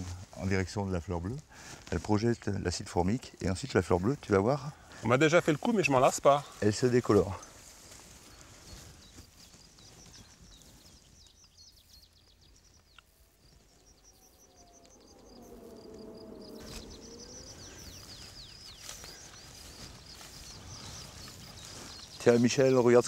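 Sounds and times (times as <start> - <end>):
soft rushing background: 13.1 - 18.8.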